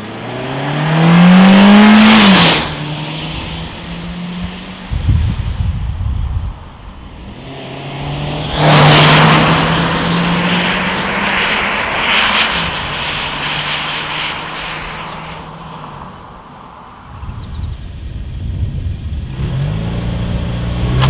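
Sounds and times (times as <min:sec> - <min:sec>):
car engine accelerating hard: 0:00.0 - 0:05.0, 0:07.2 - 0:15.5, 0:19.2 - 0:21.0.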